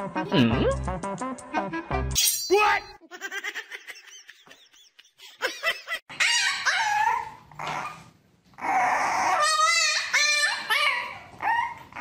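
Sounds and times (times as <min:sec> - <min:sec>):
dog whining and yelping: 0:06.1 - 0:12.0
puppy whining: 0:06.1 - 0:12.0.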